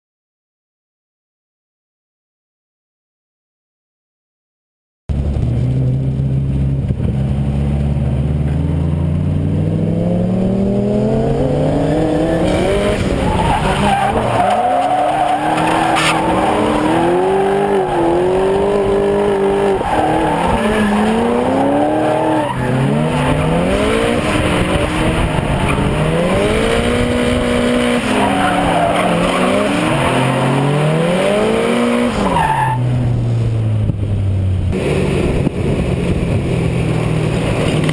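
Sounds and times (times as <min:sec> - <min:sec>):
car engine revving: 0:05.1 - 0:37.9
tyres squealing and skidding: 0:11.4 - 0:33.0.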